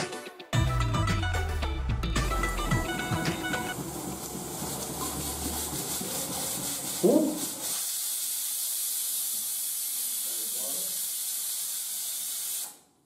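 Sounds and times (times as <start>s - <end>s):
pressure cooker hissing steam: 3.7s - 13.0s.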